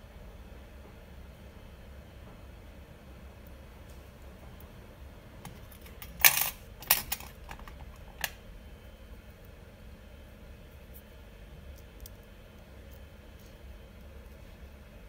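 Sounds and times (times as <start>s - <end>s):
small metal parts clinking: 5.7s - 7.8s.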